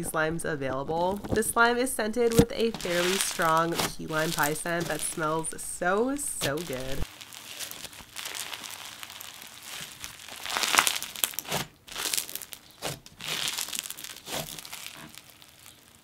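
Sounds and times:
slime crackling when squeezed: 2.3s - 5.2s, 6.4s - 16.0s.

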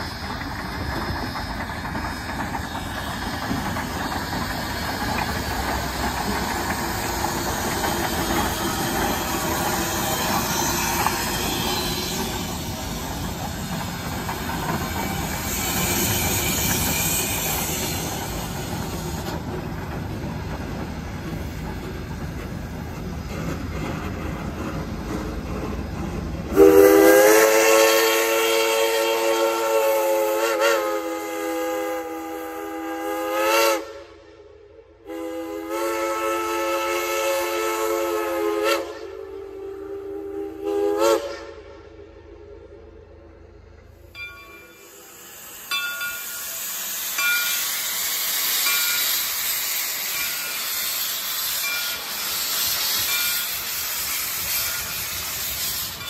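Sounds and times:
steam hissing: 0.0s - 34.3s, 44.0s - 56.0s
steam locomotive chime whistle: 8.1s - 12.9s, 15.0s - 19.0s, 26.5s - 42.8s, 44.2s - 56.0s.

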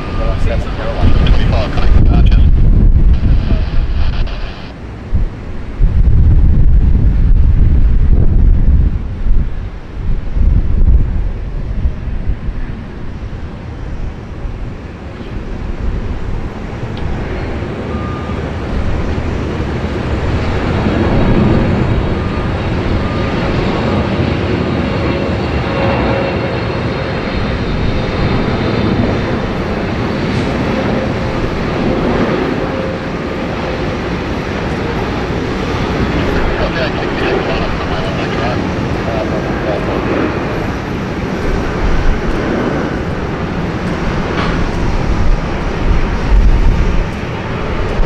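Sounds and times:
airliner engines roaring: 0.0s - 48.0s.

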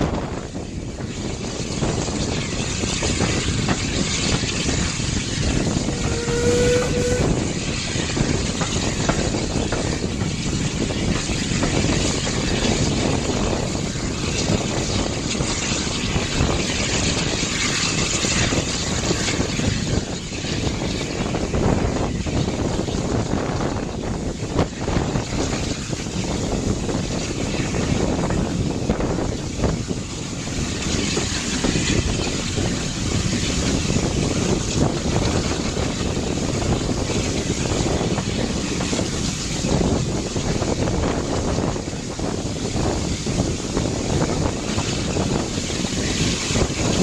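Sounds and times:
train running noise: 0.0s - 47.0s
wind at train window: 0.0s - 47.0s
train whistle: 5.7s - 8.2s.

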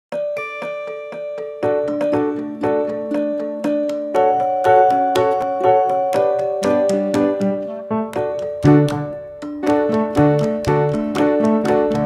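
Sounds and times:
keyboard playing repeating notes: 0.1s - 12.0s.

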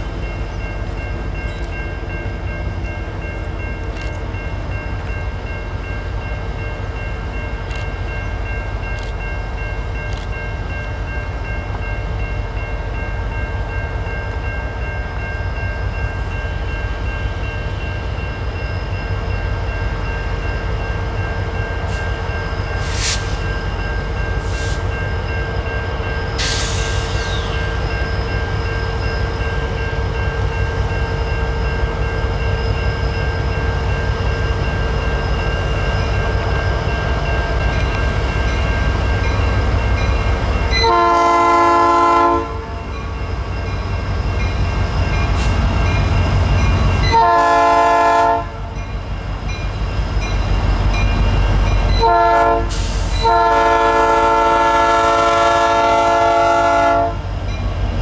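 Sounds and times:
train locomotive rumbling: 0.0s - 58.0s
train air horn blasts: 40.8s - 42.7s, 47.1s - 48.6s, 52.0s - 57.2s.

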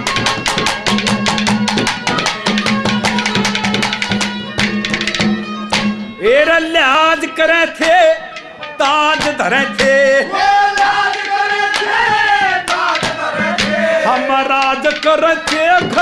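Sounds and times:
ornamented folk melody: 0.0s - 16.0s
sharp drum strokes: 7.8s - 16.0s.

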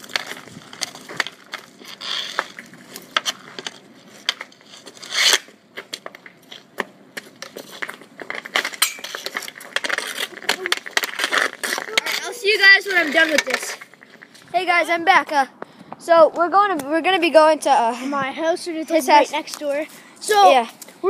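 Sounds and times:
hockey stick clicking on ground: 0.0s - 14.5s.

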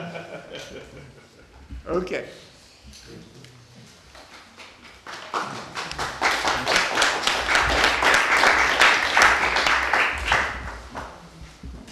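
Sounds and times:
audience applause: 5.0s - 10.9s.

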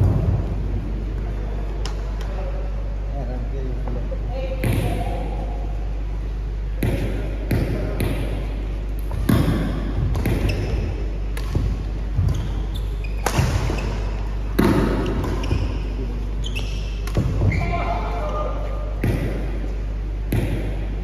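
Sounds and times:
racket hitting shuttlecock: 6.8s - 12.4s, 13.1s - 15.9s, 16.9s - 17.8s, 19.0s - 19.6s.

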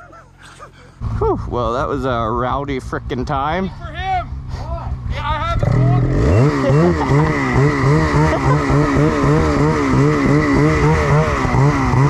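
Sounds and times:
snowmobile engine running: 0.0s - 12.0s.

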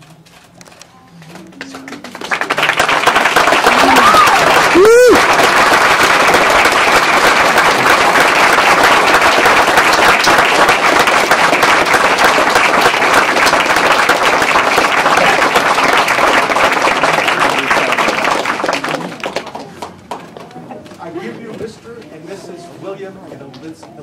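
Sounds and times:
crowd applauding: 1.6s - 20.2s.

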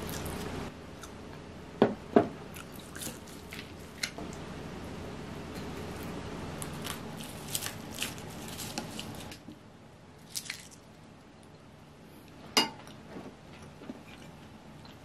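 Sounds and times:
soft chewing: 2.5s - 4.2s, 12.2s - 15.0s.

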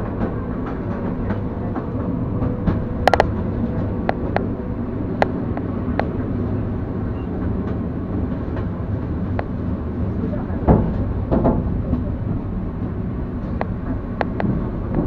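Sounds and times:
electric train rumbling: 0.0s - 15.0s
sharp knocks of train wheels: 10.6s - 15.0s.

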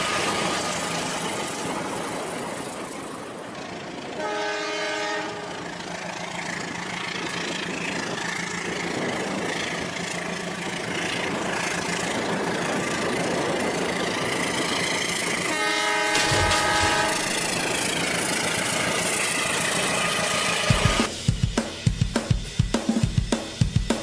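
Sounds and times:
toy train horn: 4.2s - 5.6s, 15.4s - 17.4s, 20.0s - 21.0s
toy trains whirring rattle: 6.4s - 20.8s.

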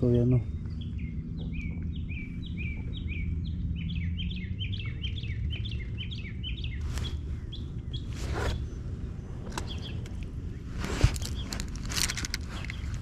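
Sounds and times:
low background rumble: 0.0s - 13.0s
songbirds chirping: 0.0s - 13.0s
brief rustle: 9.4s - 13.0s.

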